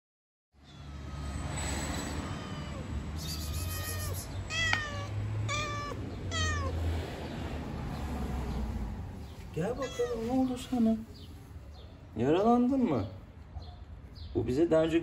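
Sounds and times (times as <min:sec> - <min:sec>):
cat meowing: 0:00.6 - 0:01.3, 0:02.1 - 0:06.9, 0:09.7 - 0:10.7.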